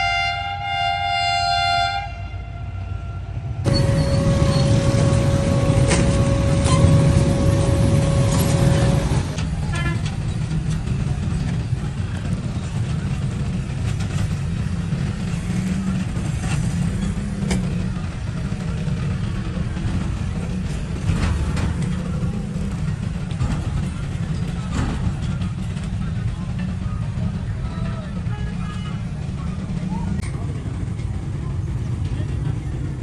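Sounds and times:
train horn chord: 0:00.0 - 0:10.0
passing train rumble: 0:00.0 - 0:33.0
steady high tone: 0:03.7 - 0:09.4.

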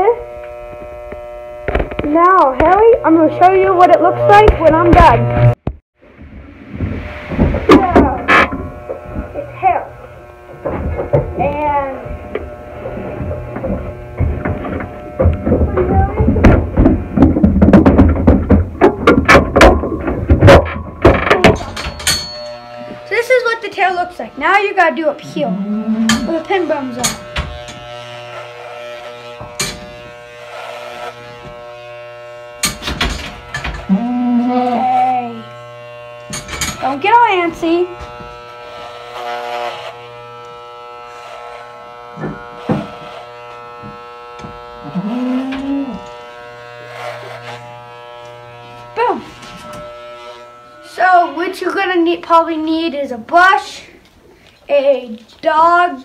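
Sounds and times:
electric clippers humming: 0:00.0 - 0:52.8
low animal call: 0:33.9 - 0:35.0, 0:44.8 - 0:46.1.

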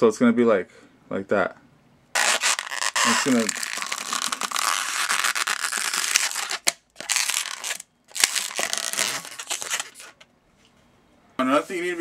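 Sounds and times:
rubber balloon rubbing and twisting: 0:02.2 - 0:10.2.

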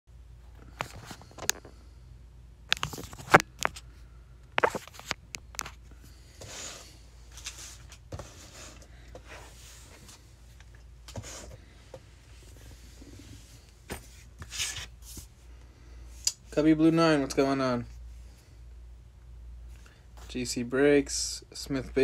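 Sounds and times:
rustles and scrapes: 0:00.5 - 0:02.0, 0:04.6 - 0:15.5.

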